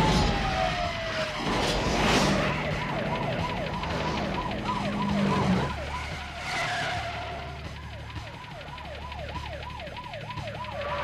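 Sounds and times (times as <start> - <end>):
car engine drone: 0.0 - 11.0
police siren yelping: 0.0 - 11.0.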